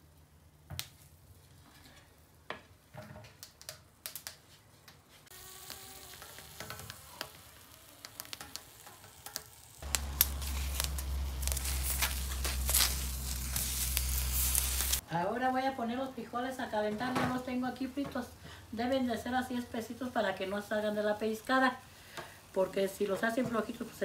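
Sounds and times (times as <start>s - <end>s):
vegetables sizzling on a griddle: 5.3s - 15.0s.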